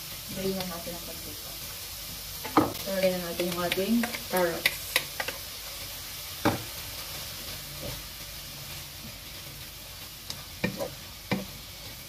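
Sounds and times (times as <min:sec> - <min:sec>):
vegetables sizzling in frying pan: 0:00.0 - 0:12.0
wooden spatula knocking on pan: 0:06.4 - 0:06.7, 0:10.6 - 0:11.5.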